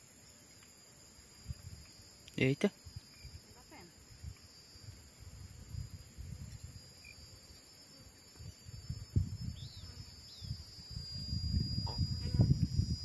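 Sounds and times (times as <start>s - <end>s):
high insect drone: 0.0s - 13.0s
faint bird chirps: 9.4s - 12.5s.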